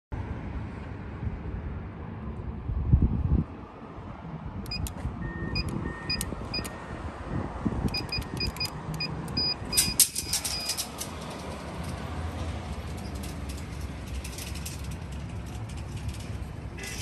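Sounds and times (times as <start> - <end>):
keypad clicks: 4.7 - 5.0, 7.9 - 9.8
keypad beeps: 4.7 - 6.8, 7.9 - 10.7
long steady beep tone: 4.7 - 7.0.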